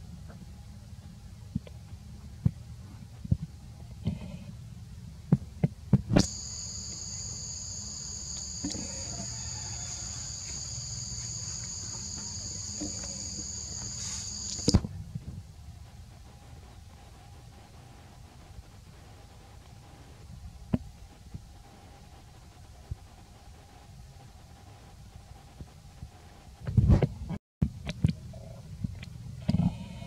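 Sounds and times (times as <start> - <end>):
high-pitched insect drone: 6.2 - 14.7.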